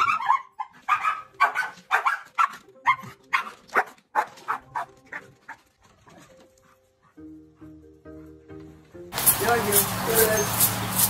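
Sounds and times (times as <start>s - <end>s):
dog barking excitedly: 0.0s - 6.3s.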